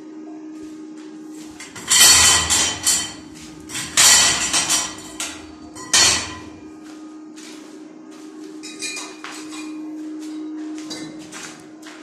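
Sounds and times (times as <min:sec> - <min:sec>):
steel channel clanking on concrete: 0:01.6 - 0:06.6.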